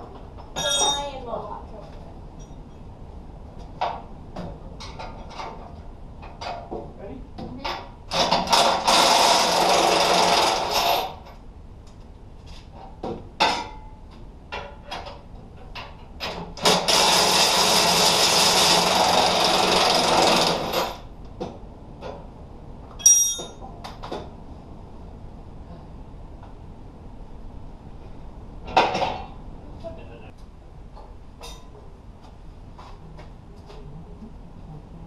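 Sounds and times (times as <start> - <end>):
tools clattering on metal: 0.4 - 1.2, 23.0 - 23.6
ringing metal clink: 0.6 - 1.2, 23.0 - 23.6
handheld power tool running: 16.7 - 20.9.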